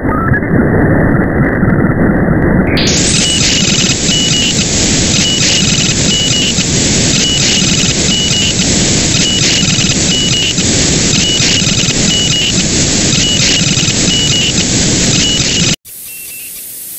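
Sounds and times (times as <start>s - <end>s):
radio static hiss: 2.6s - 16.9s
short high beeps: 2.8s - 8.6s, 9.2s - 12.5s.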